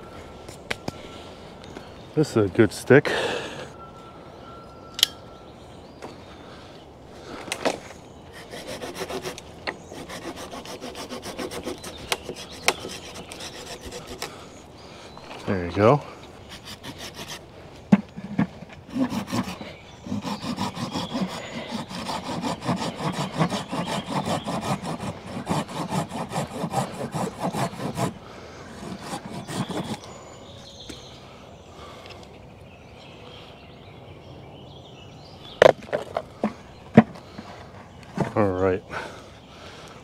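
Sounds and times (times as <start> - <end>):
pruning saw cutting branch: 8.3 - 14.4, 16.4 - 17.4, 18.9 - 30.2.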